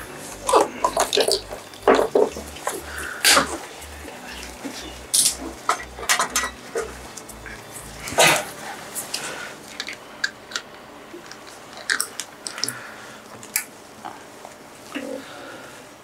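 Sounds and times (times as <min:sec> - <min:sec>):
pulsing low hum: 0:00.0 - 0:09.0.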